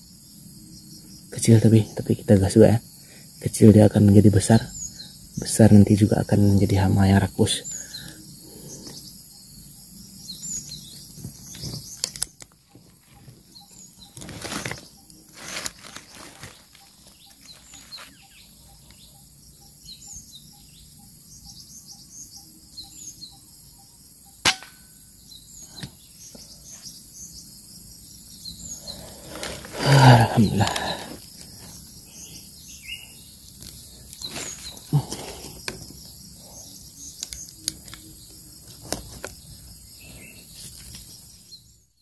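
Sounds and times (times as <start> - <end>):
faint bird chirps: 0.0 - 42.0
rifle shot: 24.4 - 24.8.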